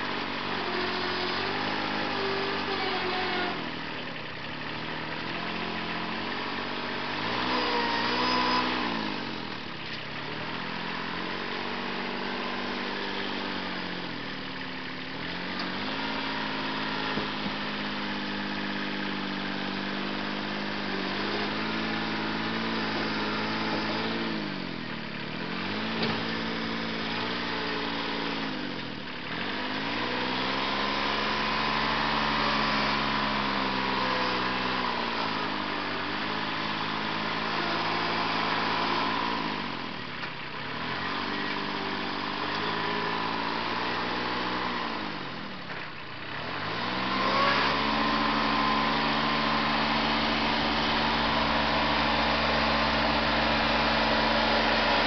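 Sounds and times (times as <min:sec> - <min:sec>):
tractor engine under load: 0:00.0 - 0:55.0
loud squeal: 0:07.4 - 0:08.9.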